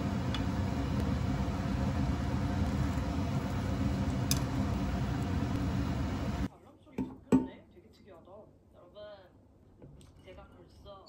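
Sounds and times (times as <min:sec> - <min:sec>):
pan cooking rumble: 0:00.0 - 0:06.5.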